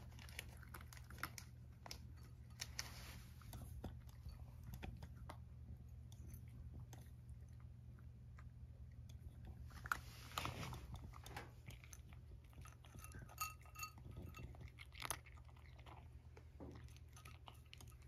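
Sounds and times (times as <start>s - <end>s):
cat crunching dry kibble: 0.0s - 18.0s.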